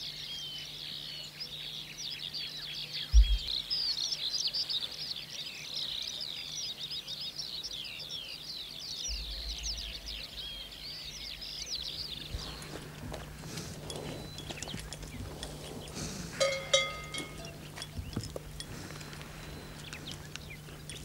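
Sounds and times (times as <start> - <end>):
songbirds chorus: 0.0 - 21.0
brief low rumble: 3.2 - 3.5
sharp low thump: 3.2 - 3.5
faint low hum: 9.1 - 21.0.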